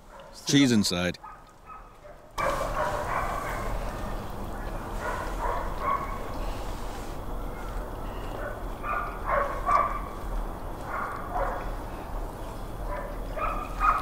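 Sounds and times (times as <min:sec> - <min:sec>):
dog barking: 0:00.0 - 0:00.4, 0:01.2 - 0:06.6, 0:07.4 - 0:10.2, 0:10.8 - 0:12.1, 0:12.8 - 0:14.0.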